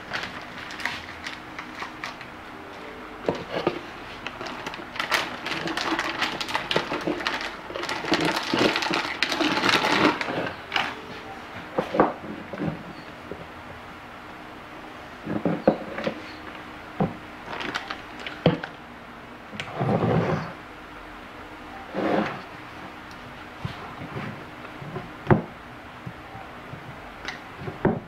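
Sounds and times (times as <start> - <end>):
rustling and clatter: 0.0 - 2.3, 3.3 - 13.5, 15.2 - 18.8, 21.9 - 25.5
faint steady hum: 0.0 - 28.0.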